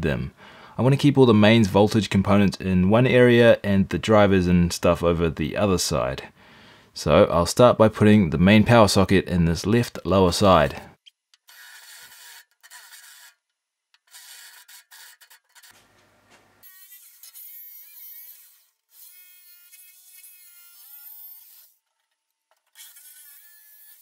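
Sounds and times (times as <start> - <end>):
jigsaw cutting steel: 11.4 - 15.8, 16.6 - 24.0
drill boring through sheet steel: 11.5 - 13.4, 14.1 - 15.7, 22.8 - 24.0.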